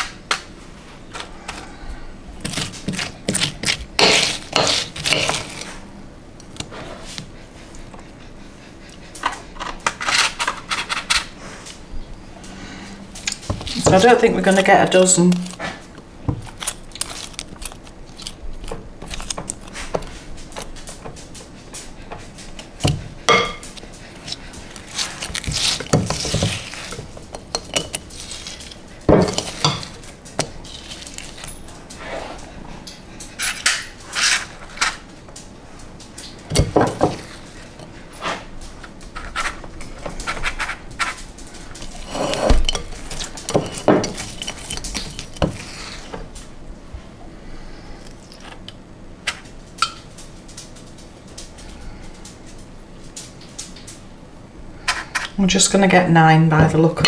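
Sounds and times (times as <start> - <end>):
spoon scraping a mixing bowl: 40.2 - 46.1.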